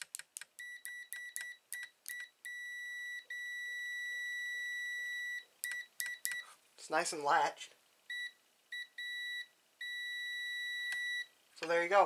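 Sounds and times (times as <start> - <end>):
short broken beeps: 0.6 - 6.5, 8.1 - 11.3
steady high beep: 0.6 - 6.5, 8.1 - 11.3.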